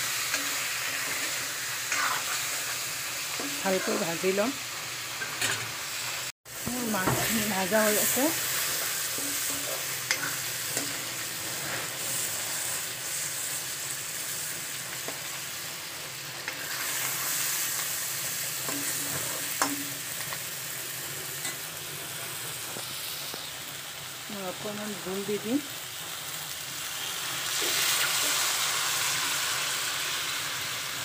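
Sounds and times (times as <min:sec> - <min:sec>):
fish sizzling in oil: 0:00.0 - 0:31.0
steel spoon scraping pan: 0:00.2 - 0:04.1, 0:07.0 - 0:12.4.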